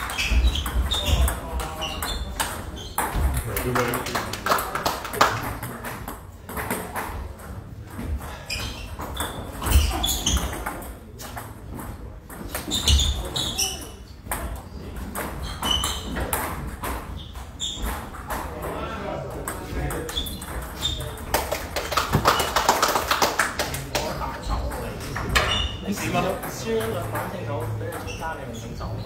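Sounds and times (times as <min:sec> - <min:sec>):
murmur of voices: 0:09.4 - 0:29.0
short high squeaks: 0:12.6 - 0:14.0, 0:15.4 - 0:16.2, 0:17.2 - 0:18.2.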